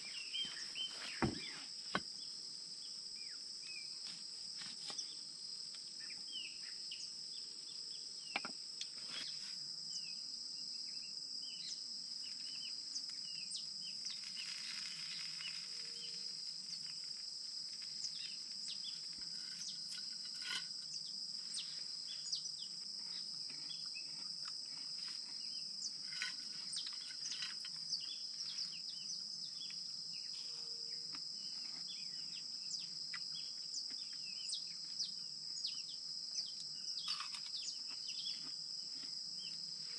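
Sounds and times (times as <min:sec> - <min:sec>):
high-pitched insect drone: 0:13.3 - 0:17.2.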